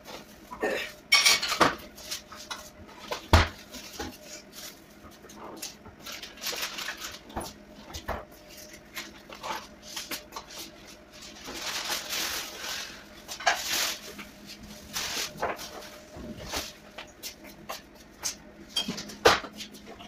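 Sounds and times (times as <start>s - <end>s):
plastic bags rustling: 3.6s - 17.8s.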